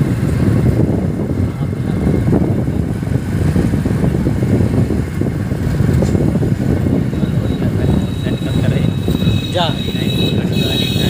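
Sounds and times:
motorcycle engine rumble: 0.0 - 11.0.

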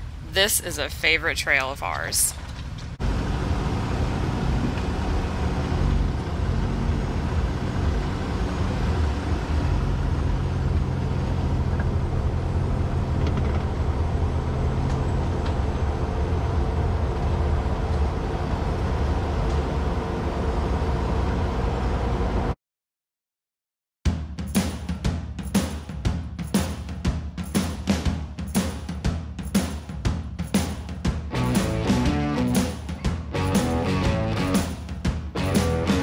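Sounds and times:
off-road vehicle engine running: 1.4 - 22.6, 31.3 - 36.0.

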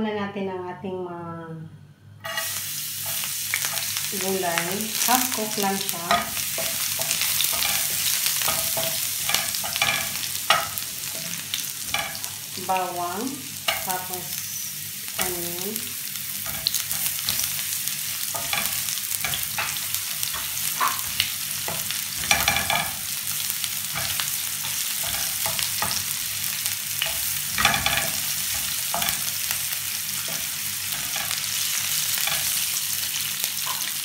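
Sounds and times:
onions sizzling in oil: 2.2 - 34.0
spatula scraping and knocking pan: 6.0 - 12.3, 16.4 - 23.2, 23.8 - 26.4, 27.0 - 32.8.

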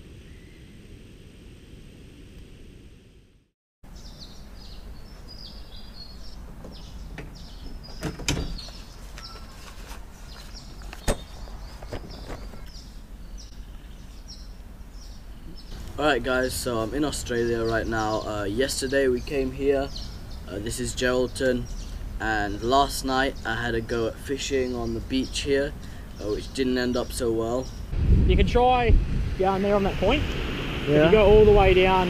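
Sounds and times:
high bird chirps: 3.9 - 9.6
low outdoor rush: 6.1 - 32.0.

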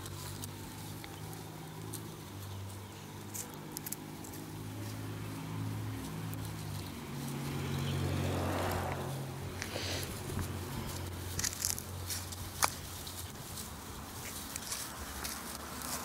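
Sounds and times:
puppies scuffling on grass: 0.0 - 16.0
low motor hum: 4.5 - 11.2.

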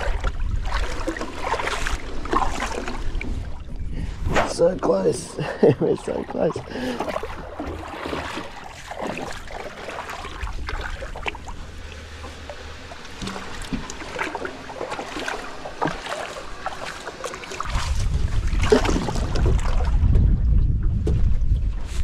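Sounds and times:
wind buffeting microphone: 0.0 - 5.4, 17.6 - 22.0
water splashing and sloshing: 0.0 - 22.0
knocks against metal boat: 13.2 - 13.9.

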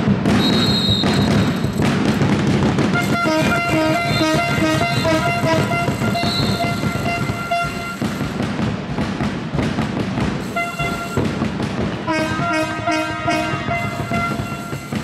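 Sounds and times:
crowd noise: 0.0 - 15.0
fan horns tooting: 3.0 - 8.3, 10.5 - 11.4, 12.1 - 15.0.

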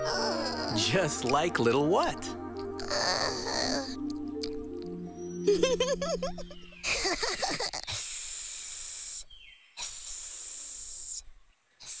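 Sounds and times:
person hissing like a snake: 2.6 - 4.0, 6.9 - 12.0.

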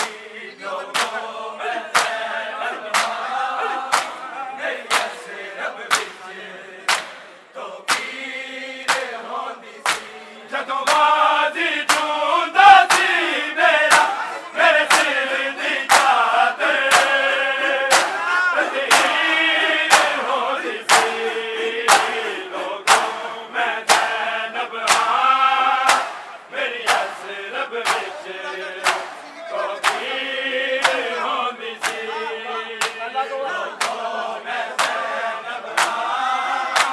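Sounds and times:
crowd of men chanting: 0.0 - 36.9
hands slapping bare chests: 0.8 - 1.3, 1.9 - 4.2, 4.8 - 5.2, 5.9 - 6.2, 6.9 - 7.3, 7.9 - 8.2, 8.9 - 9.2, 9.8 - 10.1, 10.8 - 11.2, 11.8 - 12.2, 12.8 - 14.2, 14.8 - 20.3, 20.9 - 21.3, 21.9 - 23.3, 23.9 - 24.2, 24.8 - 25.2, 25.8 - 28.2, 28.8 - 29.2, 29.8 - 30.2, 30.8 - 31.2, 31.8 - 32.1, 33.8 - 34.1, 34.8 - 35.1, 35.7 - 36.1.

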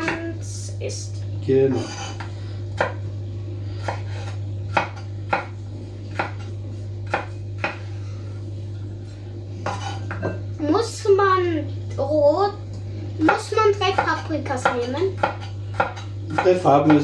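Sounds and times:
low steady hum: 0.0 - 17.0
knife chopping on wooden board: 1.7 - 3.0, 3.8 - 7.9, 9.6 - 10.4, 13.2 - 17.0.

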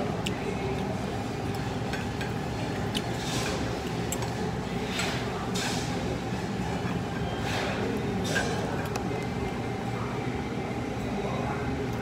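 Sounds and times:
low murmur of diners: 0.0 - 12.0
tableware clicking and clinking: 6.7 - 9.0.

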